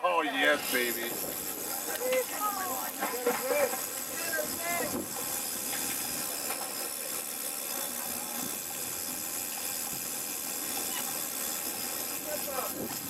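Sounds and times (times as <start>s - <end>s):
wind hiss: 0.4s - 6.4s.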